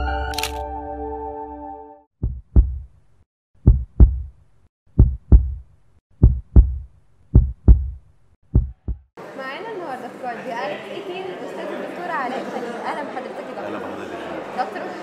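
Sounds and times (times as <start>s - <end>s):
heartbeat thumps: 2.2s - 2.9s, 3.6s - 4.3s, 4.9s - 9.1s.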